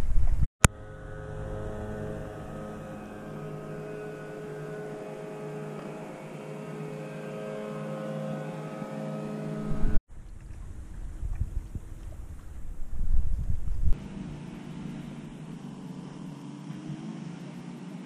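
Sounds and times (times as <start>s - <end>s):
engine droning: 0.6s - 12.9s, 13.9s - 18.0s.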